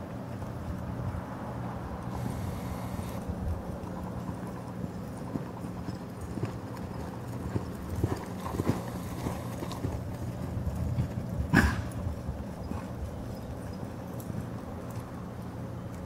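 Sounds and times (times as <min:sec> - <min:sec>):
hoofbeats on soft dirt: 0:00.0 - 0:16.0.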